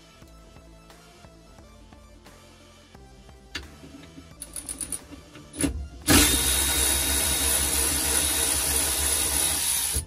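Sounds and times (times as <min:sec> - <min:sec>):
handheld power tool running: 0:06.1 - 0:10.0.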